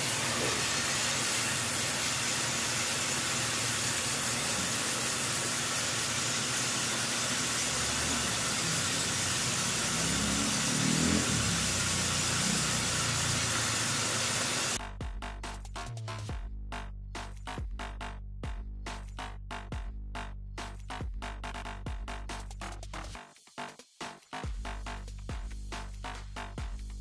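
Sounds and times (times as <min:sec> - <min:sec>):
hose water jet hissing: 0:00.0 - 0:14.8
music: 0:14.8 - 0:27.0.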